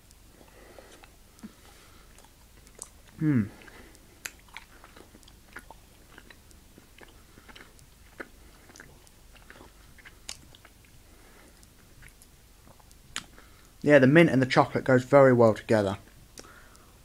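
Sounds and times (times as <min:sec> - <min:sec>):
mouth clicks and smacks: 0:00.1 - 0:13.9, 0:16.0 - 0:16.9
person chewing candy: 0:00.3 - 0:13.8, 0:16.0 - 0:16.9.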